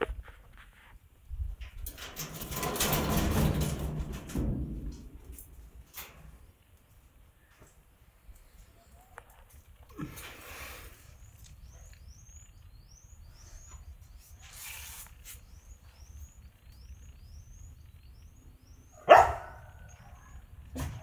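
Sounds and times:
dog barking loudly: 0:19.0 - 0:19.8.

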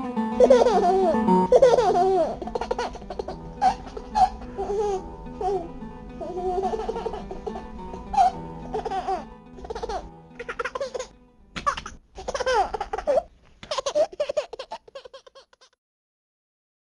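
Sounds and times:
background music: 0:00.0 - 0:12.9
high-pitched laughter: 0:00.4 - 0:05.0, 0:06.5 - 0:15.8.

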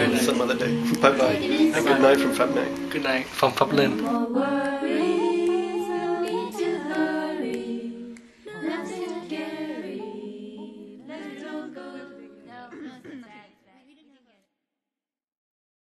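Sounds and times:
person singing long held notes: 0:00.0 - 0:12.9.

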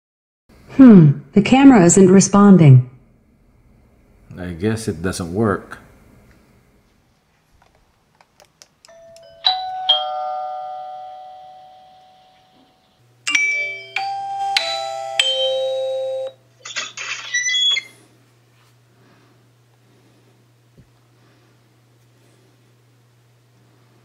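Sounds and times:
doorbell ding-dong: 0:08.9 - 0:16.4.

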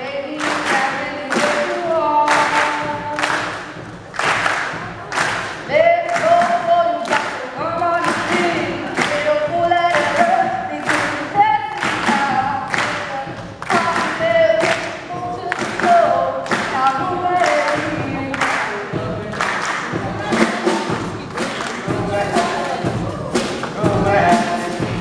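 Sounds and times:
person singing live: 0:00.0 - 0:03.9, 0:04.8 - 0:25.0
steady beat: 0:00.2 - 0:25.0.

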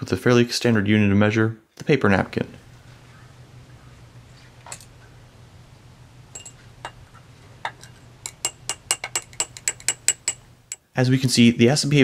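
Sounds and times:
glass rod clinking against beaker: 0:06.3 - 0:07.0, 0:07.7 - 0:10.8.

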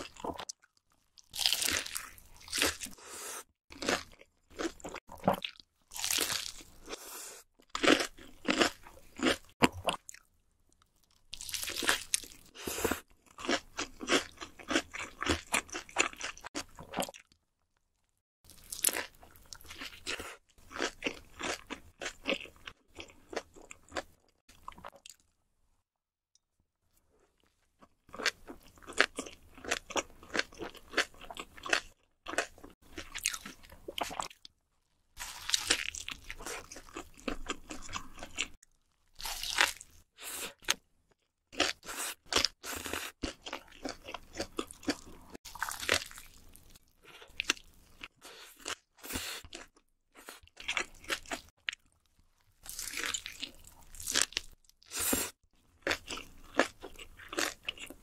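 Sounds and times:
wet chewing: 0:41.6 - 0:52.0.

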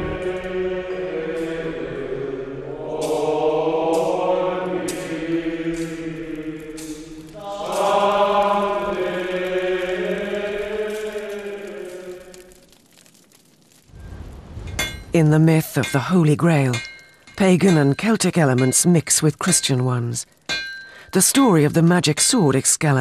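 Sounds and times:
choir chanting: 0:00.0 - 0:12.6.

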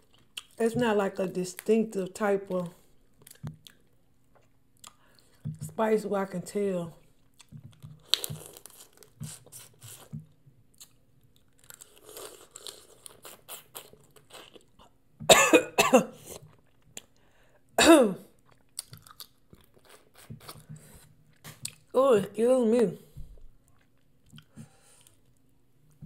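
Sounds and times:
wet chewing and sucking sounds: 0:07.0 - 0:10.2
person coughing: 0:15.3 - 0:16.2, 0:17.8 - 0:18.2.

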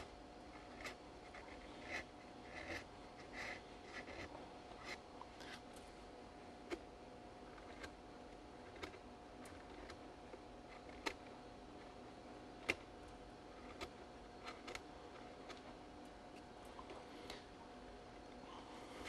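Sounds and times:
knife scraping plaster: 0:00.0 - 0:05.6.

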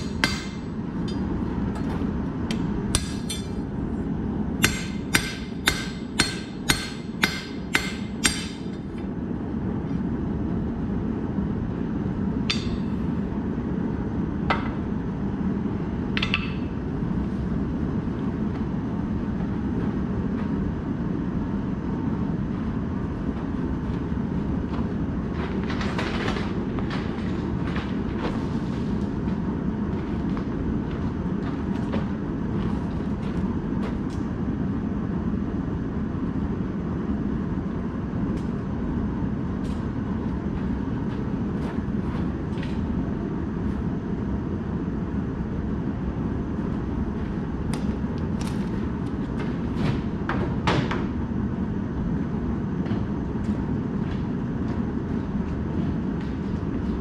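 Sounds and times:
hammer striking steel on anvil: 0:00.0 - 0:01.4, 0:02.5 - 0:03.6, 0:04.6 - 0:09.0, 0:12.5 - 0:13.0, 0:16.2 - 0:16.8.

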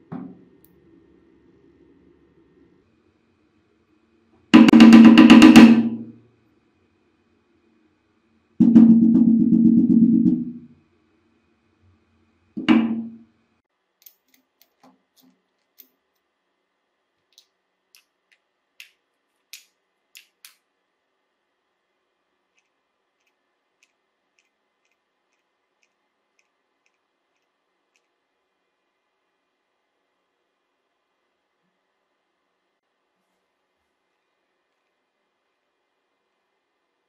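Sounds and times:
hammer striking wooden board: 0:04.6 - 0:06.0, 0:08.6 - 0:10.6.

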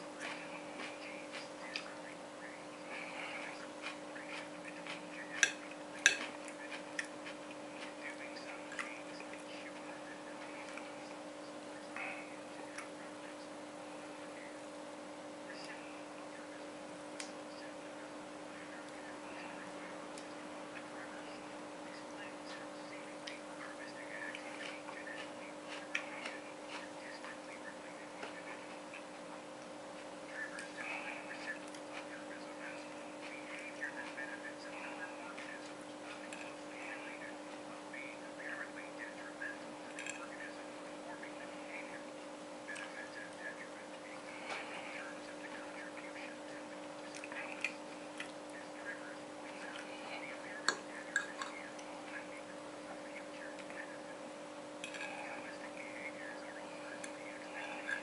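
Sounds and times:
steady low hum: 0:00.0 - 0:58.0
chewing mouth noises: 0:00.1 - 0:11.2, 0:18.7 - 0:37.7
cutlery clinking on ceramic plate: 0:05.4 - 0:06.4.

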